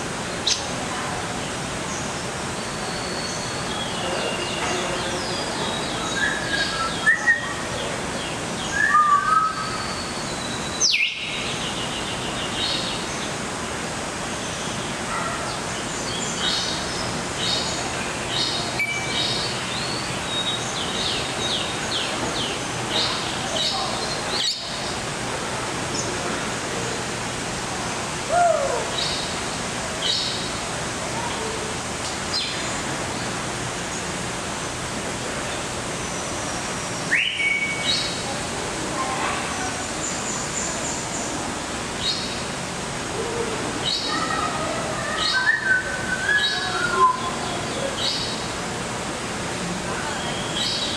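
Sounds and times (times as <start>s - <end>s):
birds chirping and twittering: 0.4s - 25.2s, 25.8s - 34.4s, 35.3s - 42.8s, 43.8s - 50.9s
steady rushing background noise: 9.6s - 45.2s, 45.8s - 50.9s.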